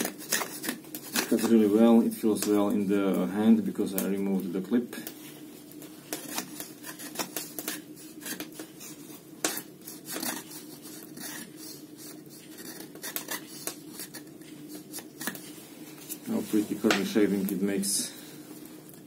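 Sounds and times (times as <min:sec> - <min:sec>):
knife scraping wooden stick: 0:00.0 - 0:01.8, 0:06.0 - 0:17.0.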